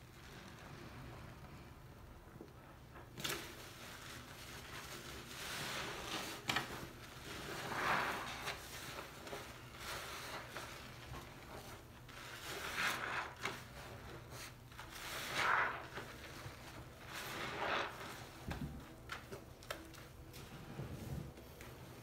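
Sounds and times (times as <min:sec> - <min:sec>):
sponges squelching in suds: 0:03.7 - 0:18.4.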